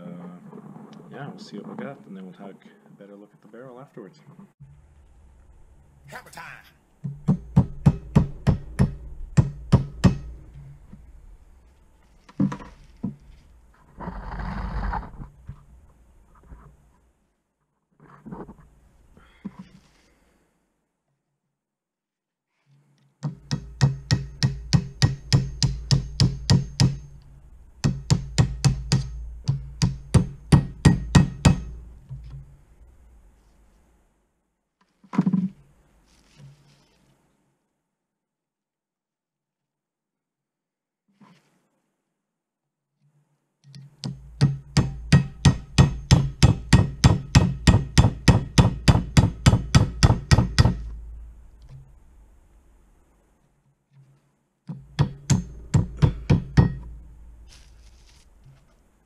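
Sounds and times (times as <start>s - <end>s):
hammer tapping metal punch: 23.3s - 27.2s, 27.8s - 31.8s, 43.7s - 51.0s, 54.8s - 56.9s.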